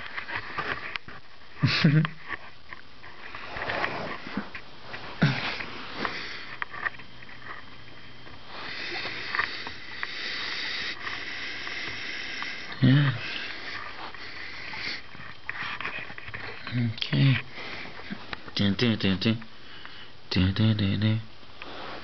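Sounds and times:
person sniffing and breathing: 0:05.0 - 0:06.7, 0:08.5 - 0:15.8, 0:17.5 - 0:18.3, 0:21.6 - 0:22.0.

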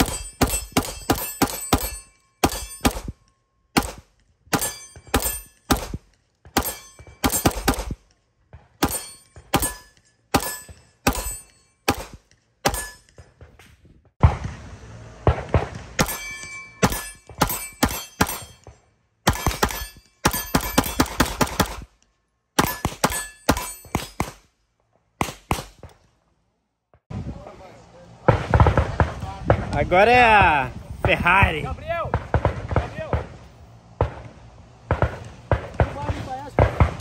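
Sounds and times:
pistol shots: 0:00.0 - 0:03.2, 0:03.8 - 0:08.0, 0:08.8 - 0:13.0, 0:19.3 - 0:21.9, 0:25.2 - 0:26.0, 0:32.1 - 0:33.3, 0:34.0 - 0:37.0.

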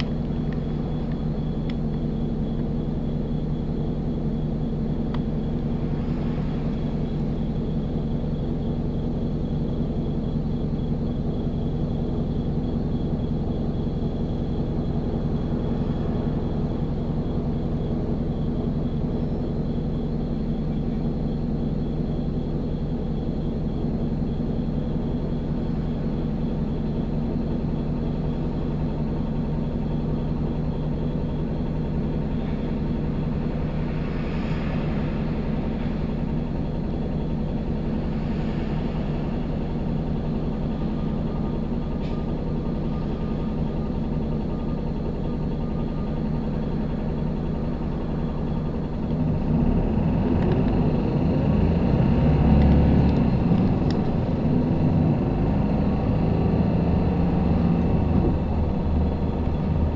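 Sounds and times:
bus engine humming: 0:00.0 - 0:59.9.

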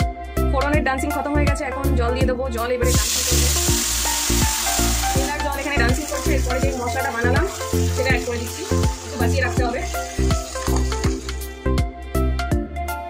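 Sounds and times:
background music with steady beat: 0:00.0 - 0:13.0
spices sizzling in hot oil: 0:02.8 - 0:11.6.

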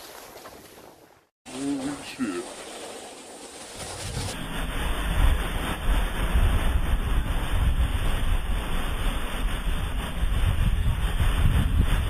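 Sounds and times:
wind buffeting microphone: 0:03.8 - 0:12.0.

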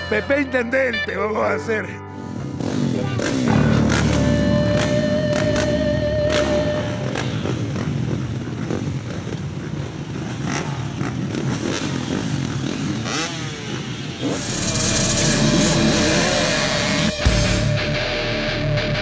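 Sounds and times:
motocross bikes idling and revving: 0:02.3 - 0:17.4.

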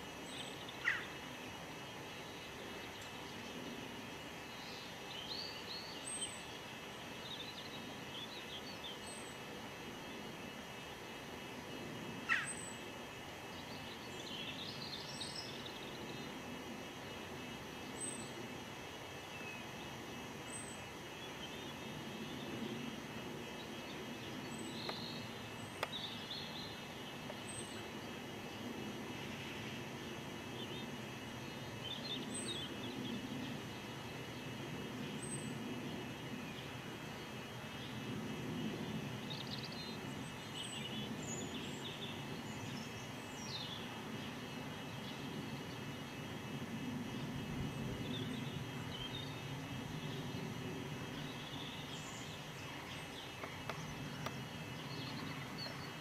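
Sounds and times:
small birds chirping: 0:00.0 - 0:10.7, 0:11.8 - 0:28.7, 0:30.5 - 0:46.3, 0:47.2 - 0:56.0
low outdoor rumble: 0:19.8 - 0:56.0.

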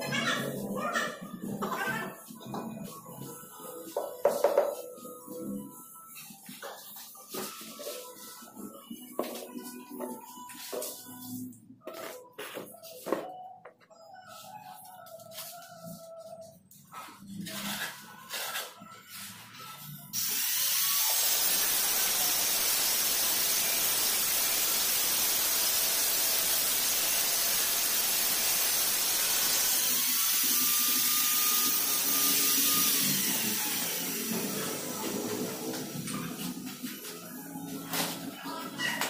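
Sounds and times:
power tool hissing and whining: 0:20.2 - 0:36.0.

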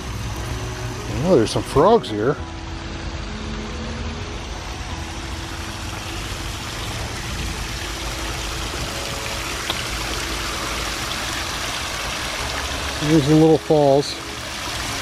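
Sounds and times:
water rushing over waterfall: 0:04.0 - 0:15.0.

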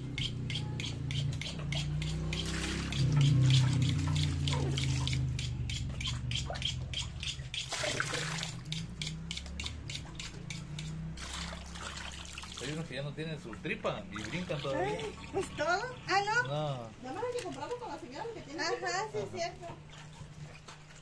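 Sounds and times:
running splashing water: 0:02.0 - 0:06.8, 0:07.5 - 0:18.4.

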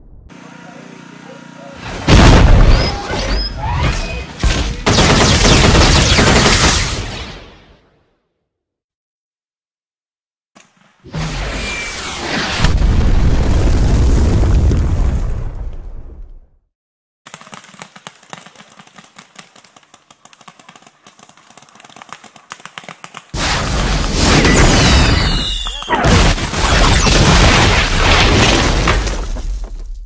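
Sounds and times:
loud explosion: 0:02.0 - 0:03.0, 0:12.6 - 0:16.3
whistling falling in pitch: 0:24.9 - 0:26.0.

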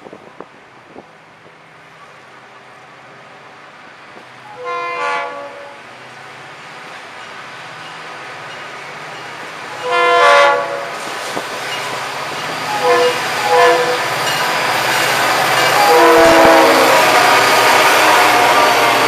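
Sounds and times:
locomotive air horn blasts: 0:04.5 - 0:05.8, 0:09.8 - 0:11.0, 0:12.7 - 0:14.1, 0:15.8 - 0:19.0.

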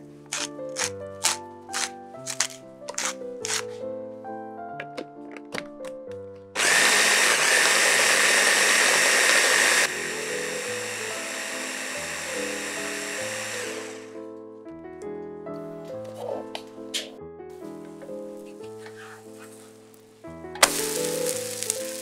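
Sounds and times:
electric chopper whirring: 0:06.6 - 0:14.1.

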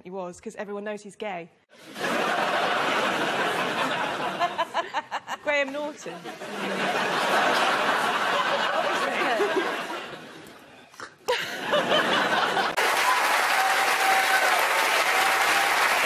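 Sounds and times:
audience laughing: 0:01.8 - 0:10.6, 0:11.3 - 0:13.0
crowd applause: 0:11.7 - 0:16.0.

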